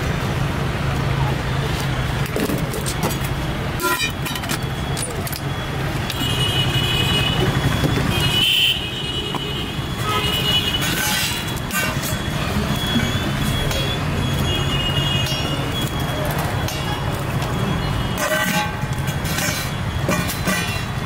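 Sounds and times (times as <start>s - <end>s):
traffic engine hum: 0.0s - 21.0s
vehicle horns: 3.8s - 4.4s, 6.0s - 15.9s, 17.6s - 21.0s.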